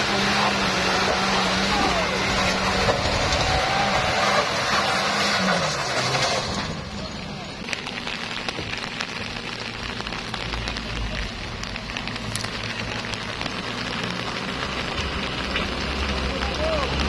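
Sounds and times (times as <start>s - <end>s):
pickup engine pulling uphill: 0.0s - 17.0s
steady hiss with ticks: 7.7s - 17.0s.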